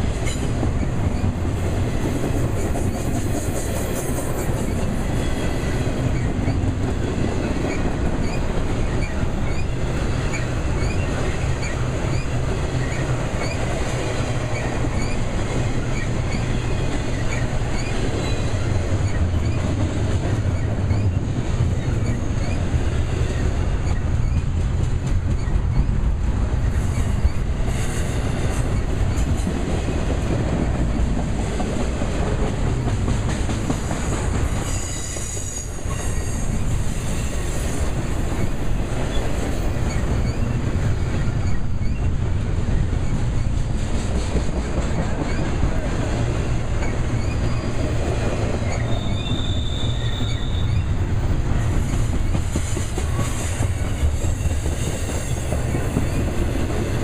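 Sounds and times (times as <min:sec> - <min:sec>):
train wheels rumbling on rail: 0:00.0 - 0:57.0
high wheel squeals: 0:46.8 - 0:51.9.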